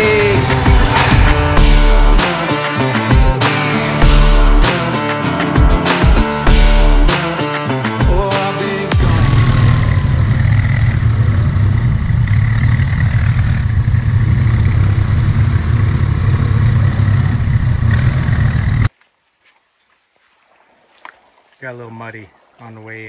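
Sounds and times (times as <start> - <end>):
atv engine running: 0.0 - 7.1, 8.9 - 18.9.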